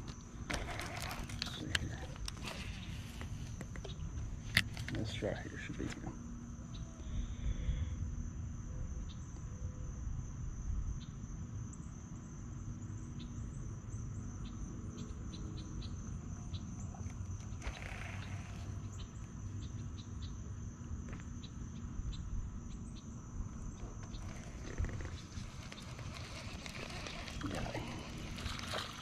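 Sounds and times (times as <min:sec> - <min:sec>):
insects droning: 0:00.0 - 0:29.0.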